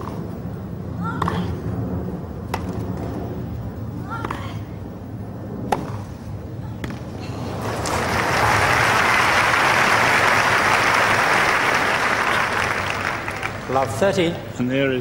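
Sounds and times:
crowd applause: 7.4 - 14.2.

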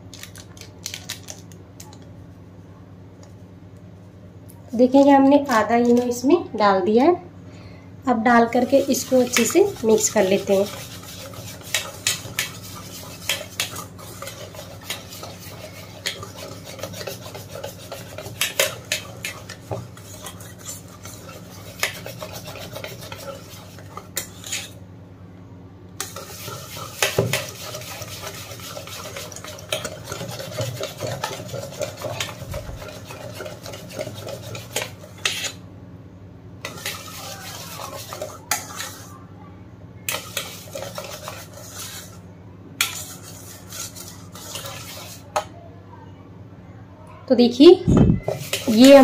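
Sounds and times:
wire whisk beating batter: 8.5 - 24.8, 26.0 - 35.6, 36.6 - 39.2, 40.1 - 42.2, 42.8 - 45.5, 48.2 - 49.0
whisk wires clinking on metal bowl: 8.7 - 24.7, 26.0 - 35.5, 36.6 - 39.0, 40.1 - 41.9, 48.2 - 49.0.

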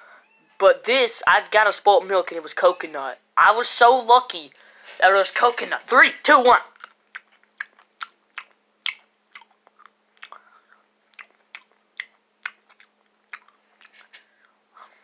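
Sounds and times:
person chewing with mouth clicks: 6.8 - 14.6.

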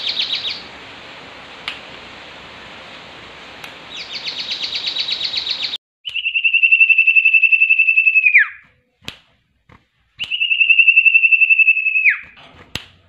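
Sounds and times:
bird singing rattling trills: 0.0 - 0.7, 3.9 - 8.6, 10.3 - 12.4.

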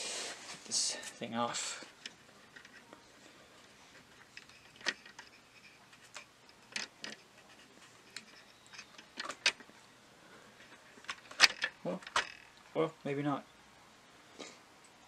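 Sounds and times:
plastic clicks and creaks: 4.2 - 9.7, 11.0 - 12.6.

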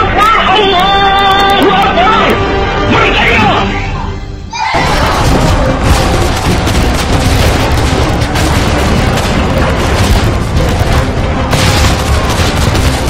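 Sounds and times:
explosions booming: 4.8 - 13.0
gunfire: 4.8 - 13.0.

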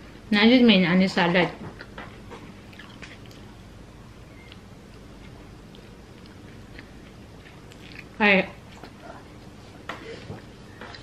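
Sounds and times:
low steady hum: 0.0 - 11.0
person chewing food: 1.8 - 3.6, 4.4 - 9.6.

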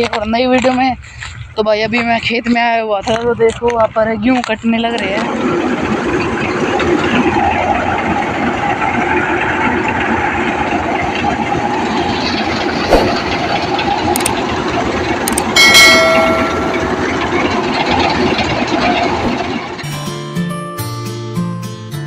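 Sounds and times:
combine harvester running: 0.0 - 22.0
ringing chime: 15.6 - 18.3.

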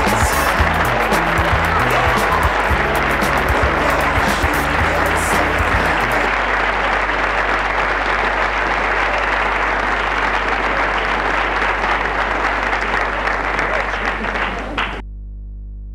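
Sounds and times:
background music with bass line: 0.0 - 6.3
applause: 0.0 - 15.0.

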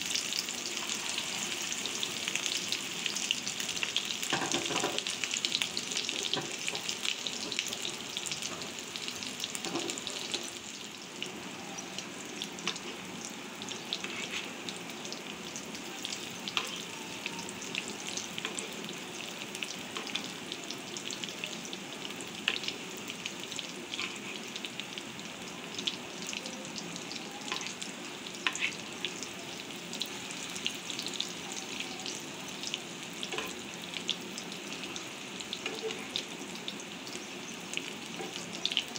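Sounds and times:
fritters sizzling in hot oil: 0.0 - 38.9
metal spatula turning food: 14.0 - 14.6, 28.4 - 28.8, 33.2 - 33.6.

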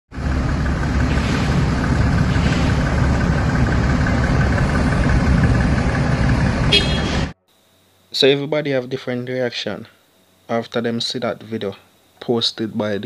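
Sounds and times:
truck engine idling: 0.1 - 7.4.

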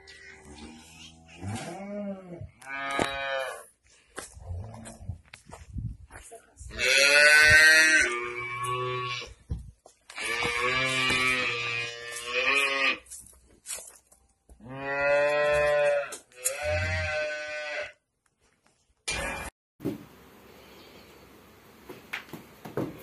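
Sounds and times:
cow mooing: 0.0 - 3.6.

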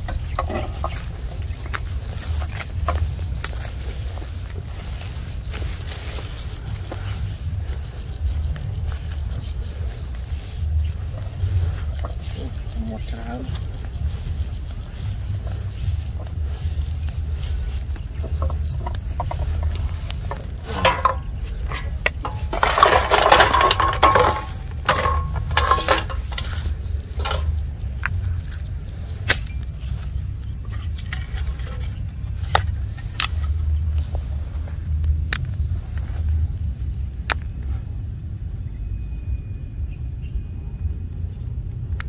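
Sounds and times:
metal basin and bottles clinking: 0.0 - 1.1, 18.4 - 27.6
steady low rumble: 0.0 - 42.0.

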